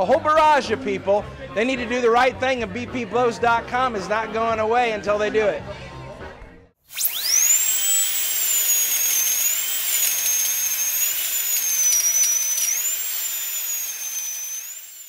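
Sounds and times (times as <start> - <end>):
high-pitched drill whining: 6.9 - 15.0.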